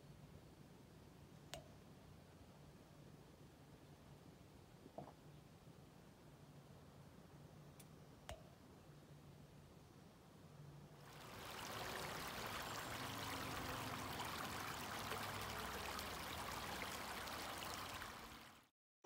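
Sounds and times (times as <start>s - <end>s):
creek running over rocks: 11.0s - 18.7s.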